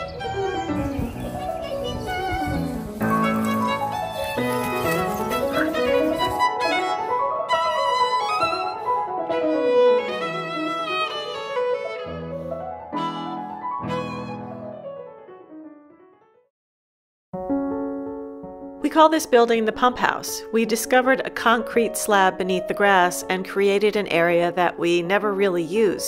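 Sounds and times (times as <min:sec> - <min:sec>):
violin melody: 0:00.0 - 0:14.9
piano chords: 0:00.0 - 0:16.5, 0:17.4 - 0:26.0.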